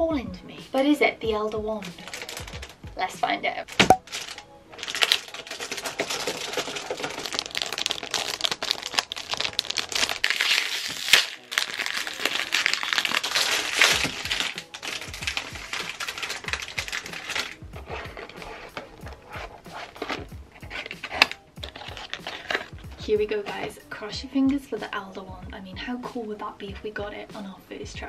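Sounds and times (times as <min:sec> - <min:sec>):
foil packet tearing and crumpling: 0:01.8 - 0:02.8, 0:03.7 - 0:22.8.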